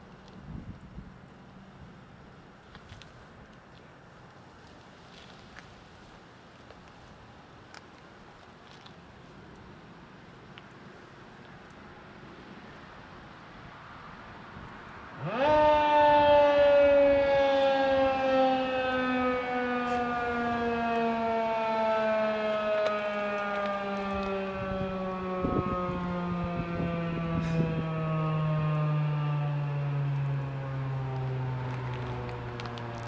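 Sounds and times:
warning siren winding up and down: 15.1 - 33.0.

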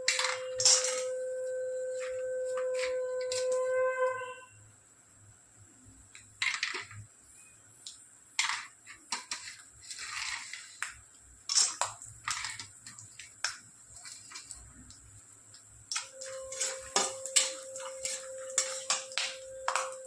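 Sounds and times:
metal spatula scraping pan: 0.0 - 4.4, 16.1 - 19.9
oil sizzling: 6.0 - 20.0.

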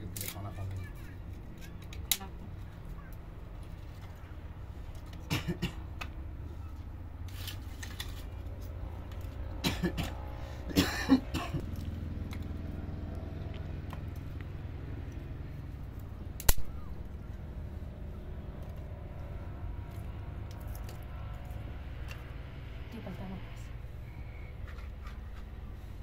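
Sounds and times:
low hum: 0.0 - 26.0
person coughing: 5.3 - 5.8, 9.6 - 10.1, 10.7 - 11.7.

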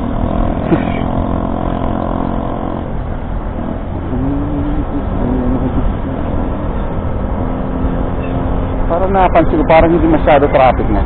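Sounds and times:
scooter engine running: 0.0 - 7.3
wavering hum: 0.0 - 9.2
road and wind rumble: 0.0 - 11.0.

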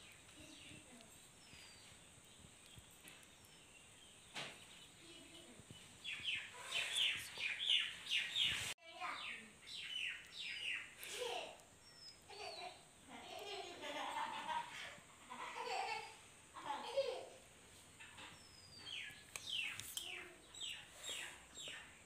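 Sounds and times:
bird chirping: 0.0 - 14.6, 18.0 - 22.0.

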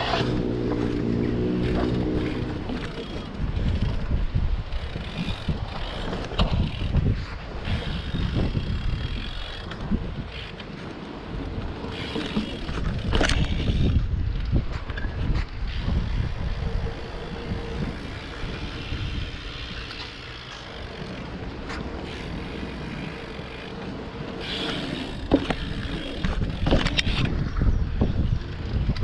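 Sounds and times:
bike tyres rolling: 0.0 - 29.0
wind noise on microphone: 0.0 - 29.0.

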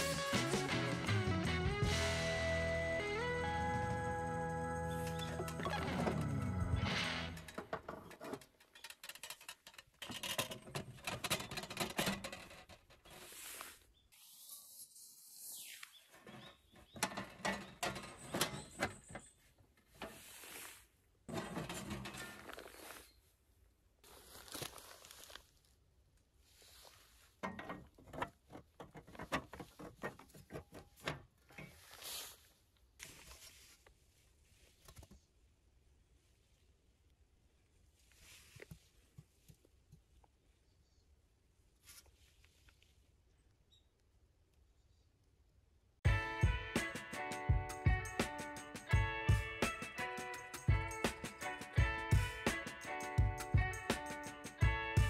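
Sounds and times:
camp gear clicks and scraping: 7.4 - 13.6, 16.2 - 20.6, 21.3 - 23.2, 27.3 - 32.4.

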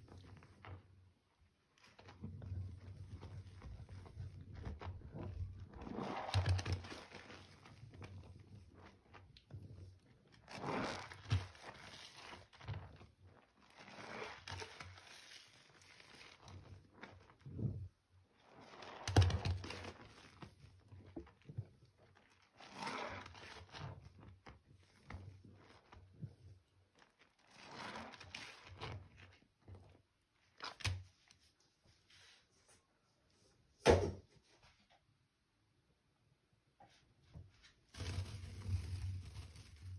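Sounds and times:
hand sloshing soapy water: 1.8 - 12.8.

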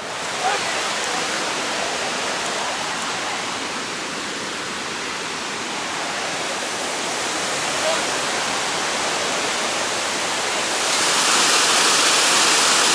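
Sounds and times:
waterfall rushing: 0.0 - 12.9.

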